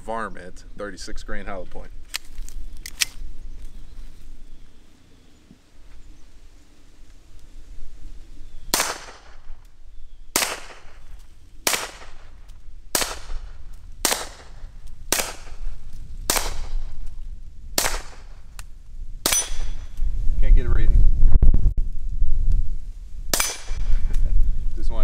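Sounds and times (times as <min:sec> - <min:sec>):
pistol shots: 0:08.7 - 0:09.5, 0:10.3 - 0:15.6, 0:16.3 - 0:16.8, 0:17.8 - 0:18.3, 0:19.2 - 0:19.8, 0:23.3 - 0:23.8.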